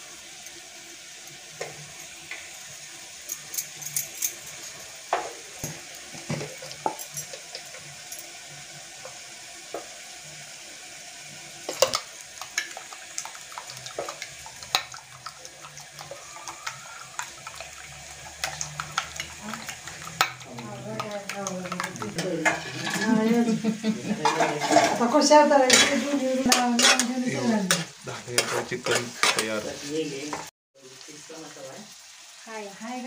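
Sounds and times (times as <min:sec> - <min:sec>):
spoon beating eggs in bowl: 0:11.7 - 0:23.2.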